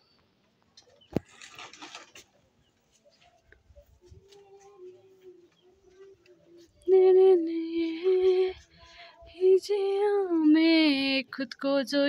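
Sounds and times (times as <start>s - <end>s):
woman singing: 4.2s - 12.0s.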